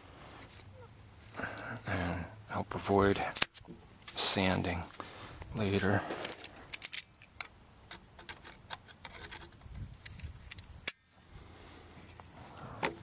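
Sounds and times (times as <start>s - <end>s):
metallic clicks of twisting wire: 5.3s - 11.0s.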